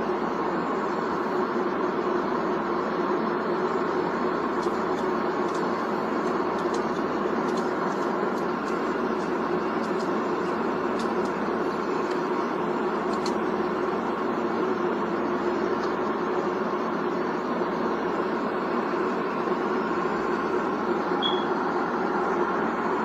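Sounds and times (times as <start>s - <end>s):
aircraft cabin noise: 3.4s - 17.2s.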